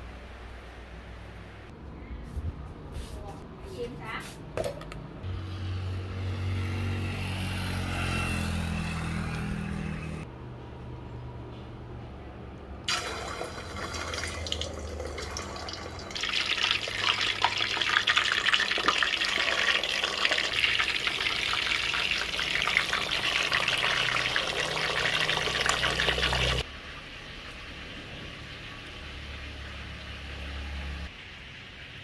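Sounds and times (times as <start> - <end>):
chicken deep-frying in oil: 12.9 - 32.0.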